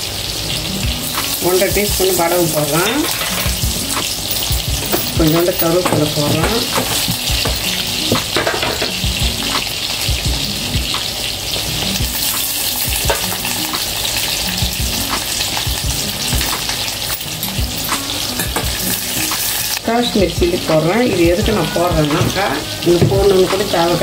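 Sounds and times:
leaves sizzling in hot oil: 0.0 - 24.0.

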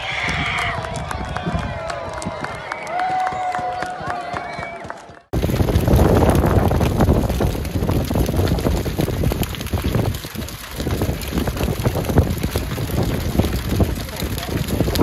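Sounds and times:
bonfire roaring and crackling: 5.3 - 15.0.

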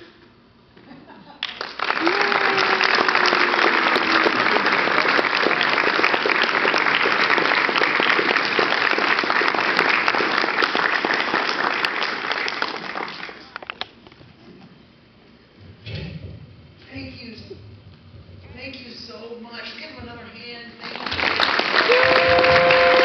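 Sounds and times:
audience clapping: 1.4 - 13.9, 20.8 - 23.0.

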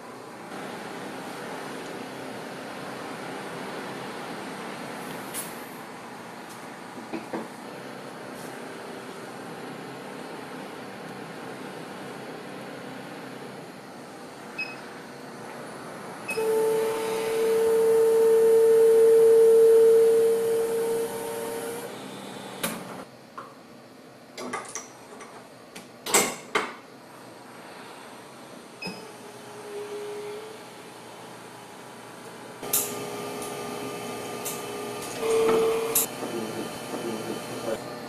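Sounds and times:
machine humming: 0.0 - 6.3, 27.6 - 38.0
mid-pitched machine tone: 16.3 - 22.7, 32.6 - 37.8.

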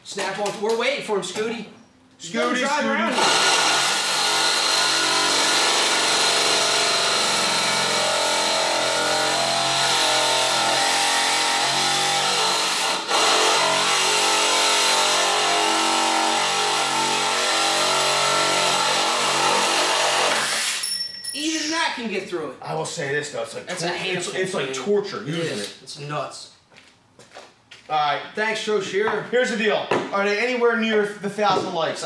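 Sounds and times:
reciprocating saw cutting wood: 3.1 - 20.8.

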